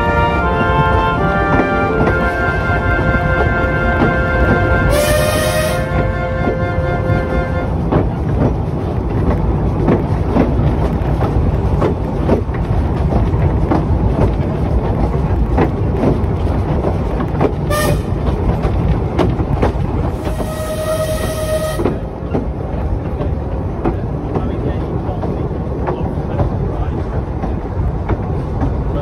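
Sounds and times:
steam whistle: 0:00.0 - 0:07.7, 0:17.7 - 0:18.1, 0:20.2 - 0:22.0
steam train rumbling: 0:00.0 - 0:29.0
wheels clicking over rail joints: 0:00.0 - 0:29.0.

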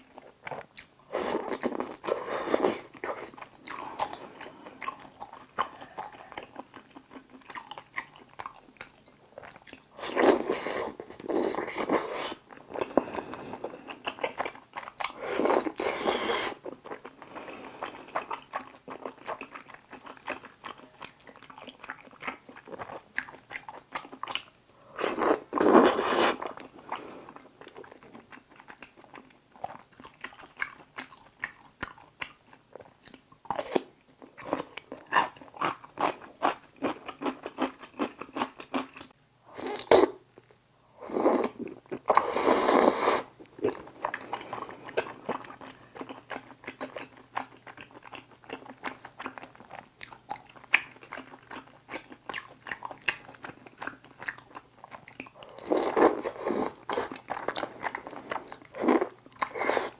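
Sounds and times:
person slurping food: 0:01.1 - 0:04.3, 0:10.0 - 0:13.8, 0:15.2 - 0:16.6, 0:25.0 - 0:27.1, 0:41.0 - 0:43.3, 0:55.5 - 0:59.9.

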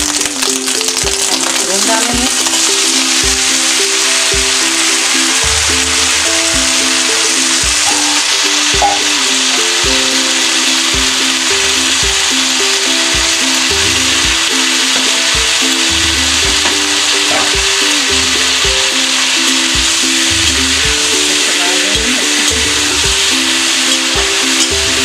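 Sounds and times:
background music with beat: 0:00.0 - 0:25.0
vegetables sizzling in oil: 0:00.0 - 0:25.0.

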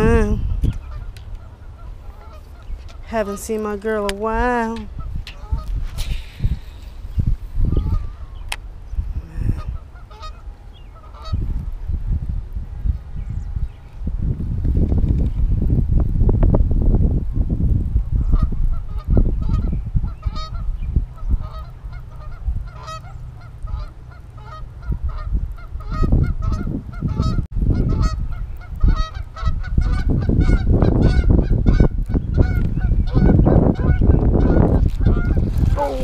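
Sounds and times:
birds calling: 0:00.0 - 0:11.6, 0:18.3 - 0:27.4
wind on microphone: 0:00.0 - 0:36.0.

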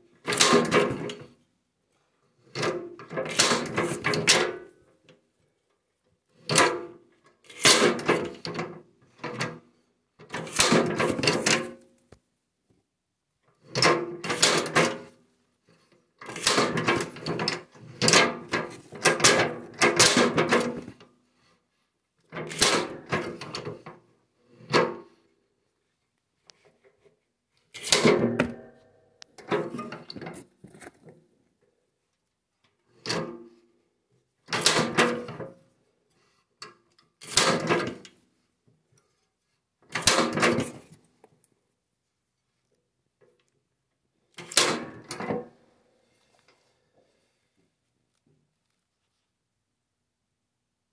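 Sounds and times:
metal plunger clanking and scraping: 0:10.3 - 0:11.8, 0:16.2 - 0:20.9, 0:27.7 - 0:31.1.

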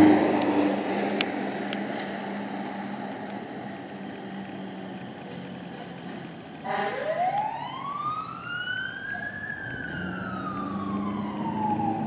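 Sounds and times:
fire truck siren wailing: 0:00.0 - 0:12.0.

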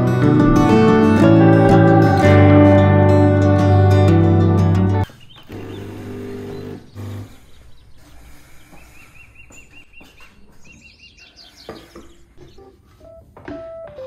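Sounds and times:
small birds chirping: 0:05.0 - 0:12.8.

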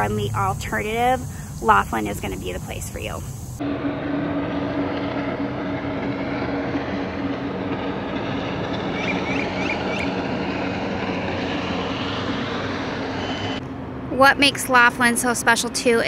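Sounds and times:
low hum: 0:00.0 - 0:15.9
motor drone: 0:03.3 - 0:14.1.

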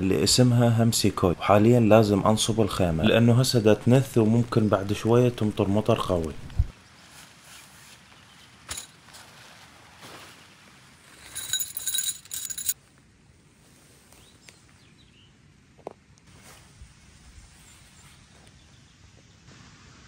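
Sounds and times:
soft handling rustles: 0:06.8 - 0:12.8
tent fabric flapping: 0:07.0 - 0:11.5.

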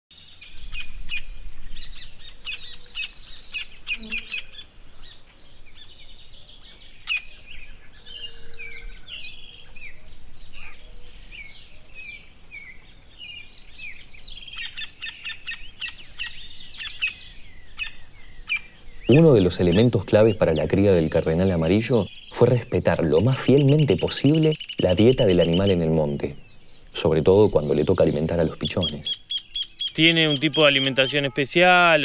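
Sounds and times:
birds chirping and whistling: 0:00.1 - 0:32.0.

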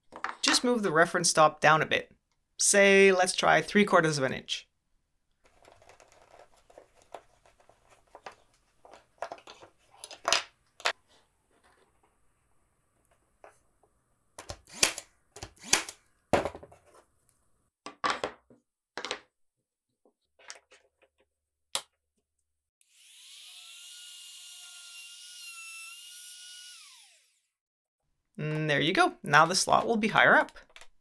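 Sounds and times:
wooden knocks and clatters: 0:05.5 - 0:11.0, 0:16.3 - 0:17.0
trim router whining: 0:22.8 - 0:27.5.

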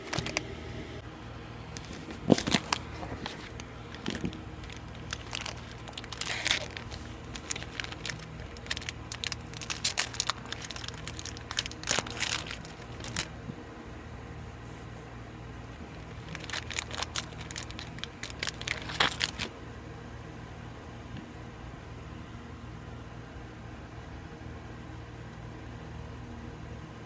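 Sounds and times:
plastic wrapper crinkling: 0:01.7 - 0:13.3, 0:15.7 - 0:19.5.

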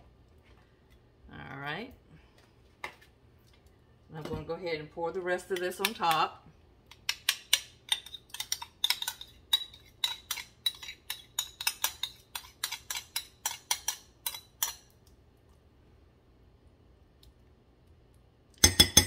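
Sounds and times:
metal spoon scraping glass bowl: 0:07.9 - 0:14.8.

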